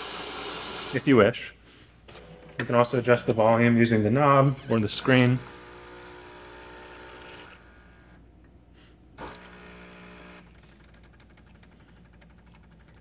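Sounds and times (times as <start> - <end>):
espresso machine pump pulsing: 0.0 - 1.1, 4.8 - 8.3, 9.2 - 13.0.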